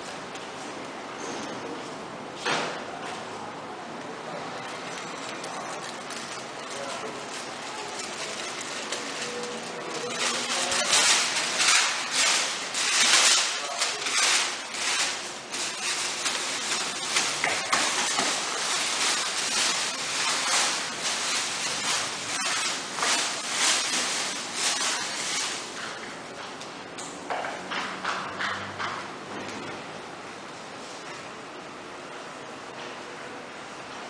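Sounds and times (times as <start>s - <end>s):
stiff paper tearing and crumpling: 5.2s - 25.9s.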